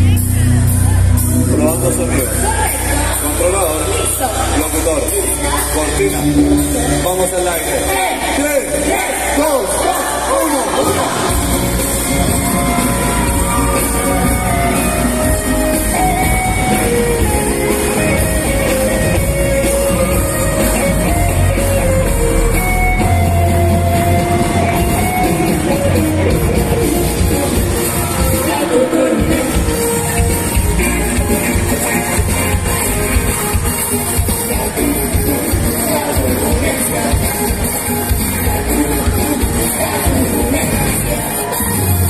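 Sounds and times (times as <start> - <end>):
bass: 0.0 - 42.0
congas: 0.0 - 42.0
electric guitars: 0.0 - 42.0
group of voices singing: 7.9 - 15.6
drum kit: 10.7 - 42.0.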